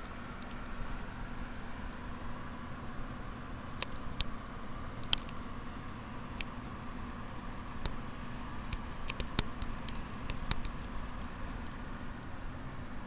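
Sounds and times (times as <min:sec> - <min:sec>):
computer fans whirring: 0:00.0 - 0:13.0
light clicks: 0:05.0 - 0:08.1.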